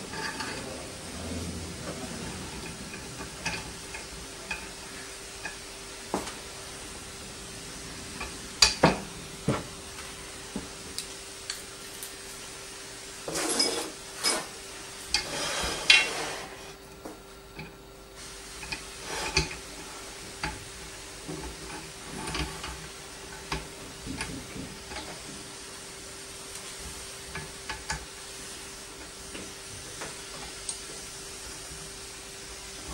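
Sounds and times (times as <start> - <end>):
metal scraping handling noises: 0.0 - 6.5, 13.2 - 16.8
faint steady hum: 0.0 - 32.9.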